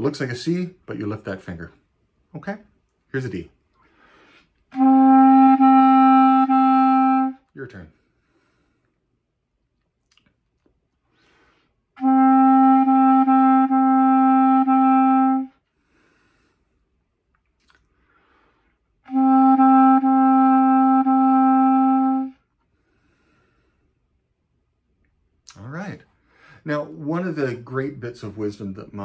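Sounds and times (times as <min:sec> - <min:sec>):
clarinet held note: 0:04.7 - 0:07.5, 0:12.0 - 0:15.6, 0:19.1 - 0:22.4.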